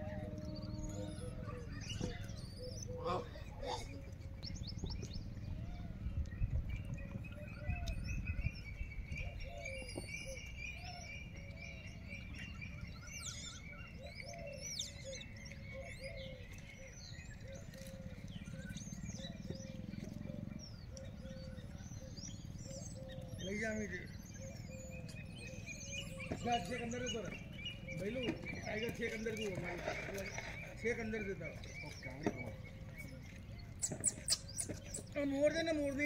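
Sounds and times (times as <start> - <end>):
low rumble: 0.0 - 2.4
birds chirping and calling: 0.0 - 36.0.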